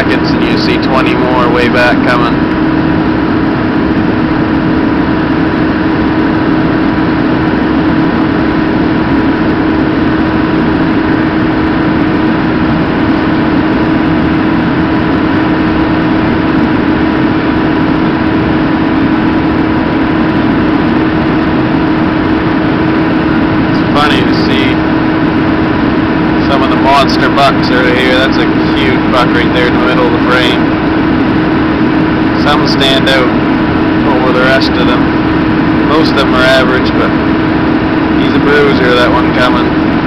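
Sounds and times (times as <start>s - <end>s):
engine idling: 0.0s - 40.0s.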